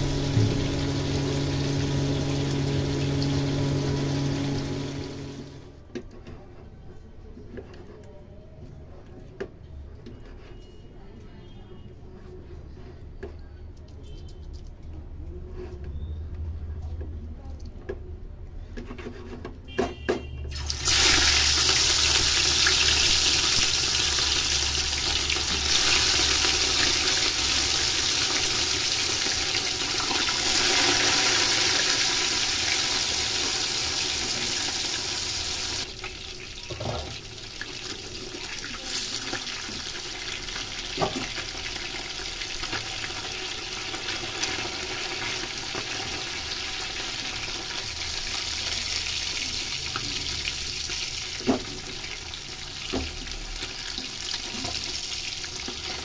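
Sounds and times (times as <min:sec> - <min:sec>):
fish sizzling in hot oil: 0:20.5 - 0:56.0.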